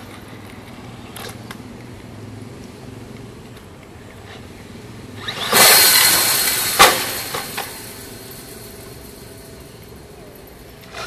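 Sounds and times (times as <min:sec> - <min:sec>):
fence clattering rattle: 0:05.2 - 0:09.8
toy truck tumbling knocks: 0:05.3 - 0:08.0
sharp bang: 0:05.4 - 0:08.8.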